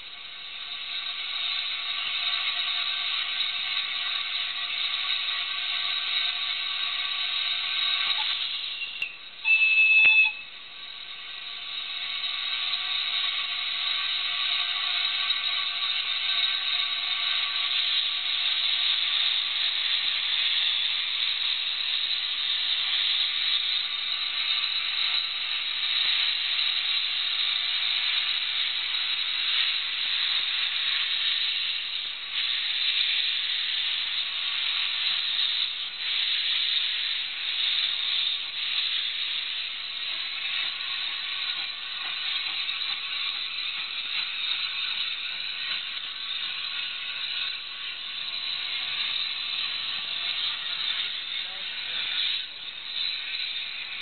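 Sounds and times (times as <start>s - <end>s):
steam blowing from drain cocks: 0.0s - 54.0s
steam locomotive hissing: 0.0s - 54.0s
steam whistle blast: 5.8s - 10.8s.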